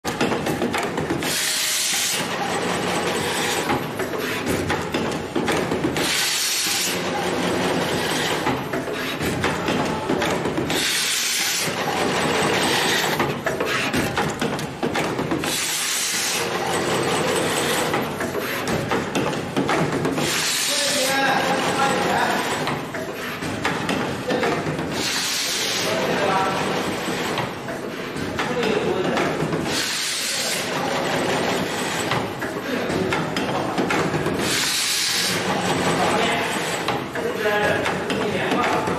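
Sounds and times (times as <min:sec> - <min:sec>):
machine clattering: 0:00.0 - 0:38.9
compressed air hissing: 0:34.4 - 0:35.4.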